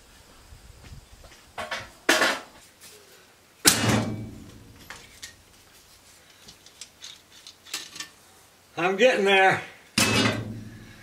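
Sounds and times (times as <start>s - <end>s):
sharp knocks and clunks: 3.7s - 4.7s, 10.0s - 10.9s.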